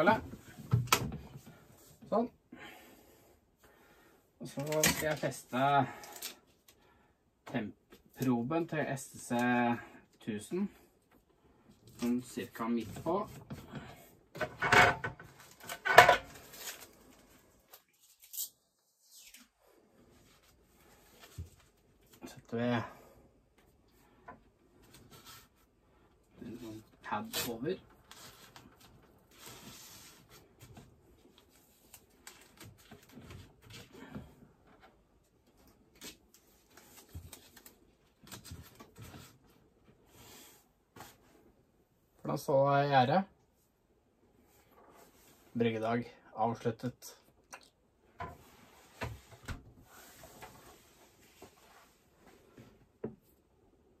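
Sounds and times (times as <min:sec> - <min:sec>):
faint rustling of tape: 0:11.0 - 0:22.6, 0:23.5 - 0:41.6.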